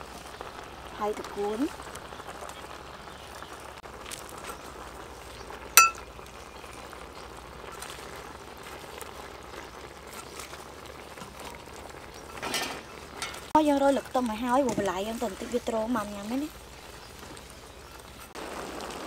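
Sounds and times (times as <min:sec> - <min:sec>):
broth bubbling and hissing: 0:00.0 - 0:19.0
metal ladle clinking on pan: 0:05.8 - 0:06.0.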